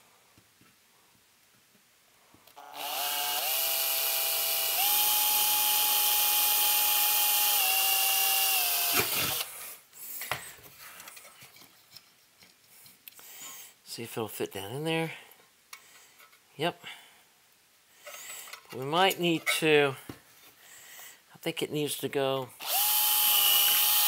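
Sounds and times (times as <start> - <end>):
electric drill whining: 2.5 - 9.6, 22.6 - 24.0.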